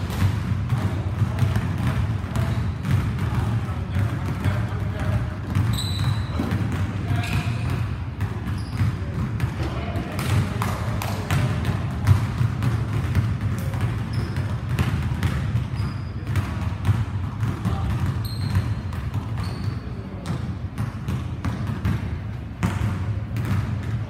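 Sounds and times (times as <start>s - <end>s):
basketballs bouncing on wooden floor: 0.0s - 24.0s
high squeaks: 5.7s - 6.4s, 18.2s - 18.8s.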